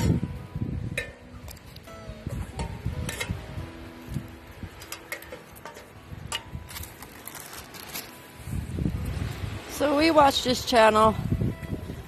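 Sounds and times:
wood sticks knocking on thin metal: 4.8 - 6.5.

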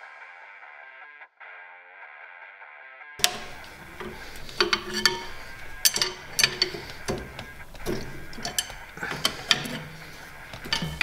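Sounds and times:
screwdriver clinking on metal: 3.2 - 11.0.

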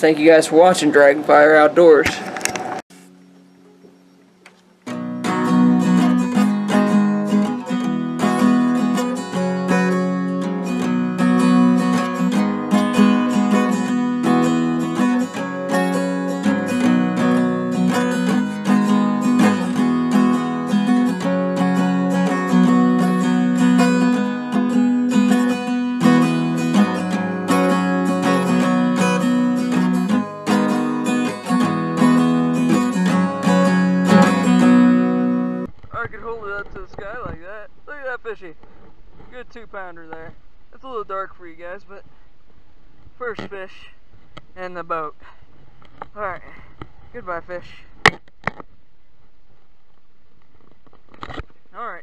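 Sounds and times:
acoustic guitar strumming chords: 2.9 - 38.6.

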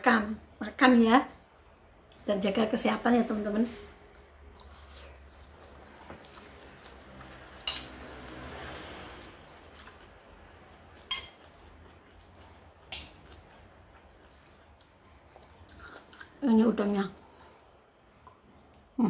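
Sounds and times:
metal spoon clinking against bowl: 7.6 - 8.0, 11.1 - 11.4.

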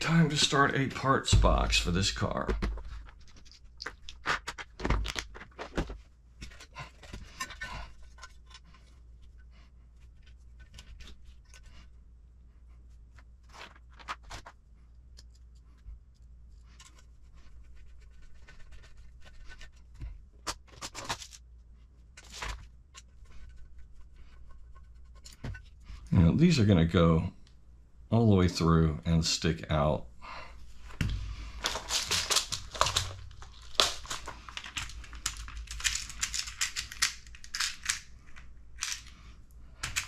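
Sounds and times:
plastic scraping: 0.0 - 8.8, 30.8 - 39.2
plastic parts clicking and tapping: 1.4 - 8.7, 30.9 - 39.2, 39.8 - 40.0
pages being turned: 30.8 - 38.1.

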